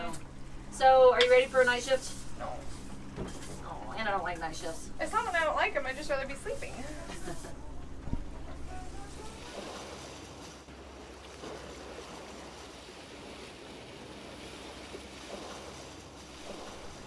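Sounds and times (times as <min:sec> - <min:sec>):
water rushing past a boat: 0:00.0 - 0:17.0.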